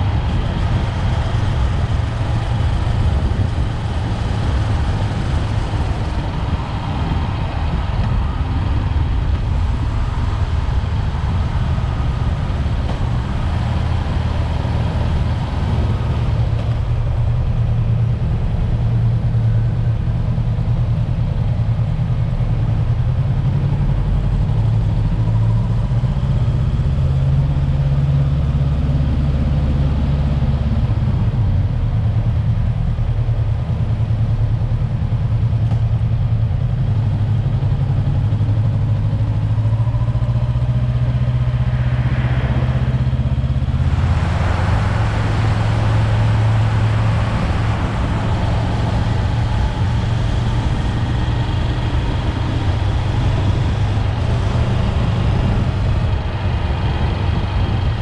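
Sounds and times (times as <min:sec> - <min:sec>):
motorcycle engine droning: 0:00.0 - 0:58.0.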